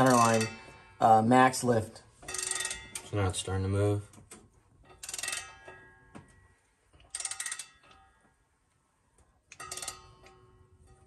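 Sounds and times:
ratchet wrench clicking: 4.9 - 5.8, 7.0 - 8.0, 9.5 - 10.5.

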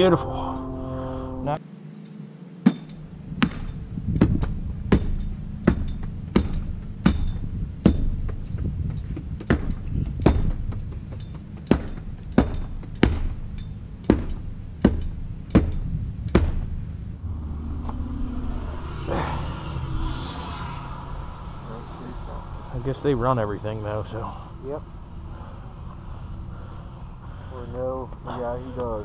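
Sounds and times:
low engine rumble: 0.0 - 29.0
stamp mats pounding concrete: 3.4 - 16.7.

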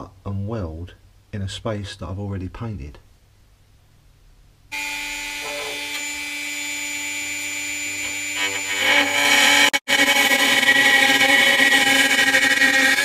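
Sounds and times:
cut-off disc cutting metal: 4.7 - 13.0
rotary tool whining: 4.8 - 13.0.

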